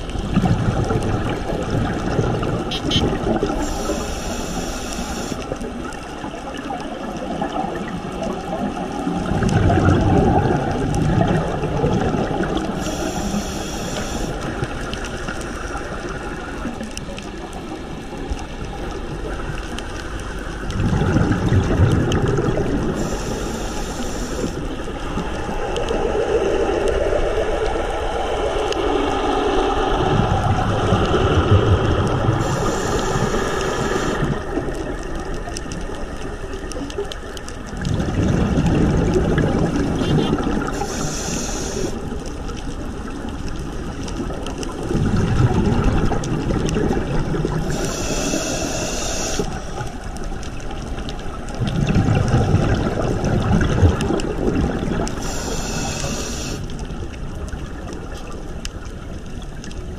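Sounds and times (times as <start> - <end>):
bubbles rumbling underwater: 0.0 - 59.9
regulator hiss: 2.7 - 5.6, 12.8 - 14.4, 23.0 - 24.7, 32.4 - 34.5, 40.7 - 42.2, 47.6 - 49.8, 55.2 - 56.8.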